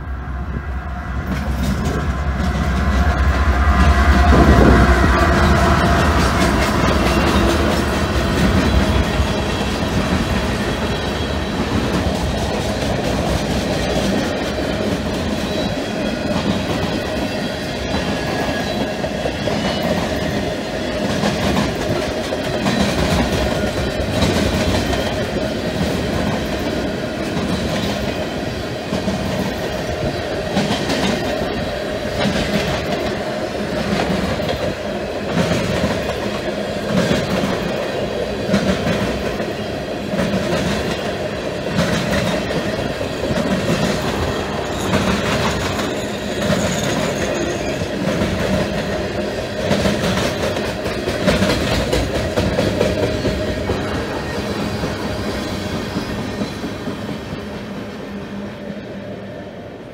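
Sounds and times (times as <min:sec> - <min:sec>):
train wheels rumbling on rails: 0:00.0 - 0:59.9
clickety-clack over rail joints: 0:01.3 - 0:58.0
ringing tone from wheels: 0:44.3 - 0:48.1.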